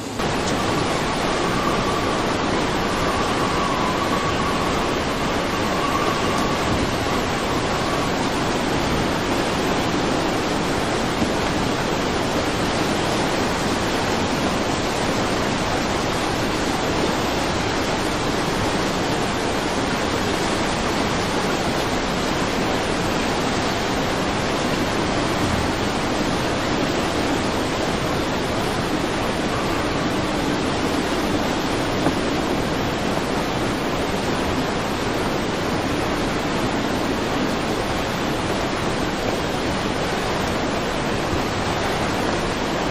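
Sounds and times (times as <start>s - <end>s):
floodwater rushing and churning: 0.0s - 42.9s.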